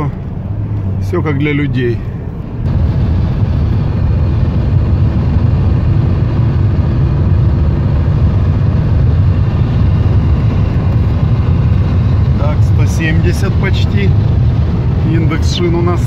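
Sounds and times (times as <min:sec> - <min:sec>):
car cabin road noise: 0:00.0 - 0:16.0.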